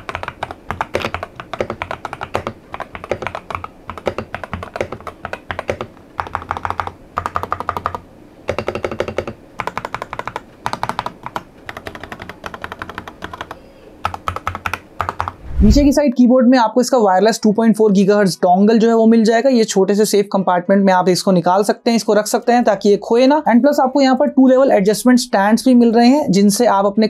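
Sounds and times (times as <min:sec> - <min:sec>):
mechanical keyboard typing: 0:00.0 - 0:15.4.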